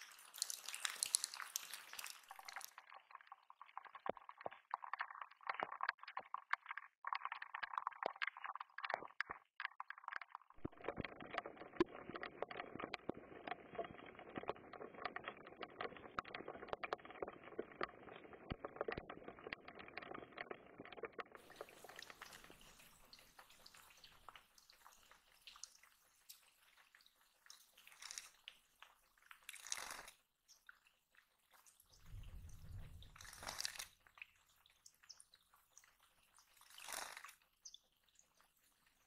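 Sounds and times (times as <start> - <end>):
rain pattering: 31.9 - 33.9.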